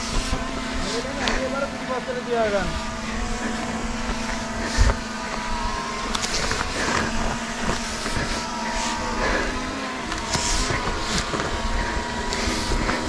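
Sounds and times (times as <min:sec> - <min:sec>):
drone motor buzz: 0:00.0 - 0:13.0
rope and gear rustling: 0:02.7 - 0:13.0.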